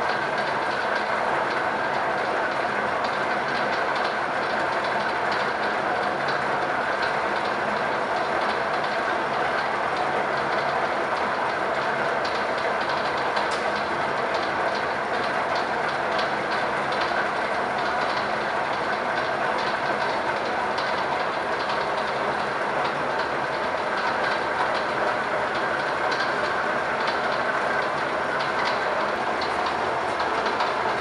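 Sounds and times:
band saw running: 20.0s - 31.0s.

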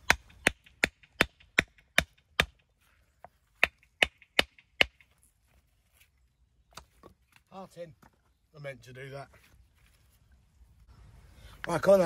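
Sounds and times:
hammer striking stone: 0.0s - 2.6s.

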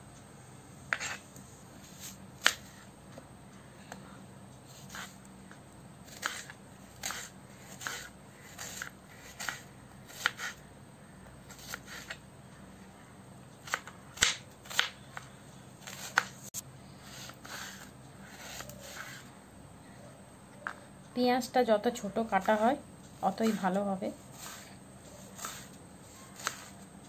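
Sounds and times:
knife chopping onion on board: 2.4s - 2.7s, 6.1s - 10.6s, 13.6s - 16.3s, 26.3s - 26.8s.

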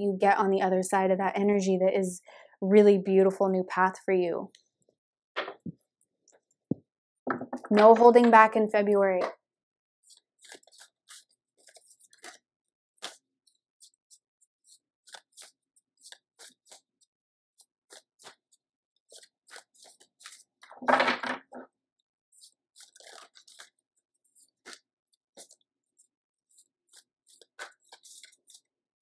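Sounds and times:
cards being shuffled: 10.1s - 12.4s, 13.0s - 20.7s, 22.4s - 28.7s.

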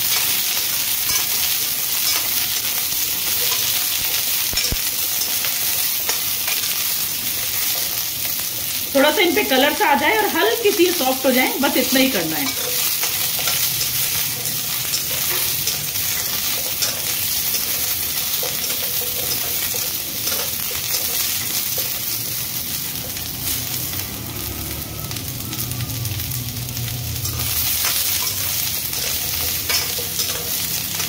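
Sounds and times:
onions sizzling in oil: 0.0s - 31.0s
steel spoon scraping pan: 27.3s - 31.0s.

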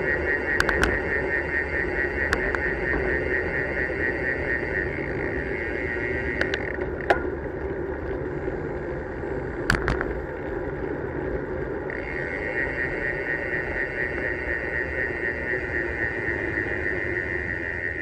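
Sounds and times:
high steady buzz: 0.0s - 10.3s, 11.2s - 18.0s
bicycle tyre rumble: 0.0s - 18.0s
bicycle clicks and knocks: 0.5s - 1.2s, 2.2s - 3.7s, 6.1s - 12.2s.

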